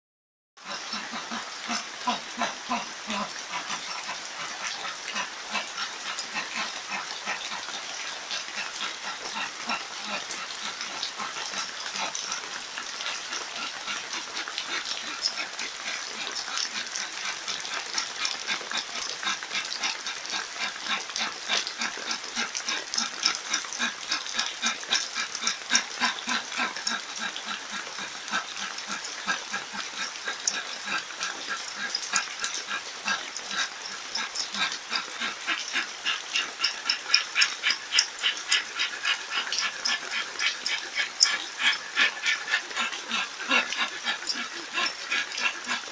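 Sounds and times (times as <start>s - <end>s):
falling rain: 0.6s - 45.9s
man panting rapidly: 0.6s - 45.9s.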